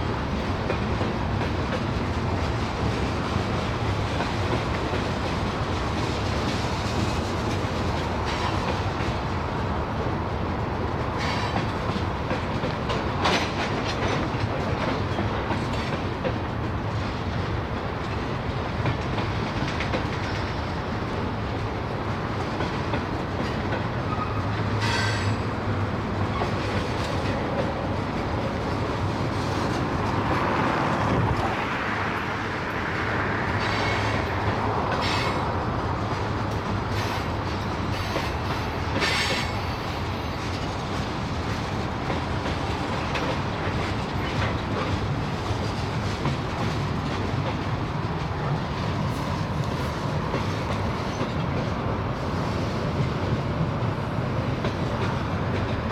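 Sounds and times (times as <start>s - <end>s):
train wheels rumbling on rails: 0.0s - 55.9s
train wheel squeals: 8.2s - 8.8s, 11.1s - 11.8s, 23.5s - 25.6s, 33.5s - 35.6s, 36.9s - 40.8s, 49.0s - 51.5s.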